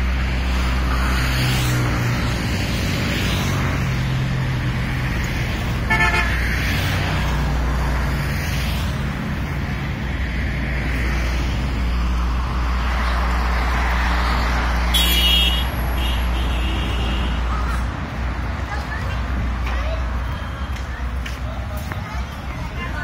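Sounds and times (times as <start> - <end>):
highway traffic rumble: 0.0 - 23.0
vehicle horn toot: 5.9 - 6.4, 14.9 - 17.4.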